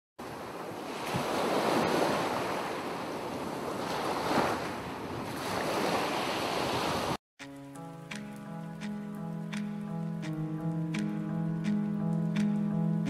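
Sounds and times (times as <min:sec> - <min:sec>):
sea waves washing in: 0:00.2 - 0:07.2.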